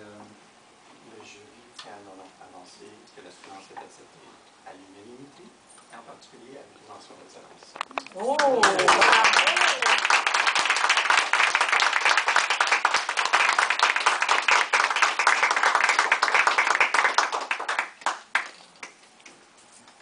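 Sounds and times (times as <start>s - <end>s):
group of people clapping: 8.0s - 19.4s.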